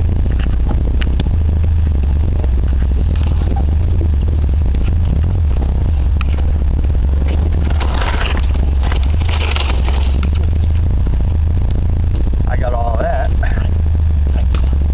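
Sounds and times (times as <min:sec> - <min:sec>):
vehicle engine running under load: 0:00.0 - 0:14.9
body and loose parts clattering: 0:07.3 - 0:10.8.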